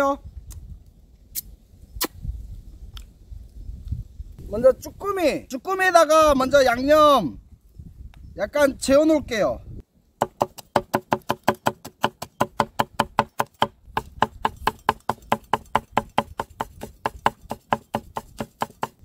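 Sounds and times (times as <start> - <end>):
knife chopping on wooden board: 10.2 - 19.0.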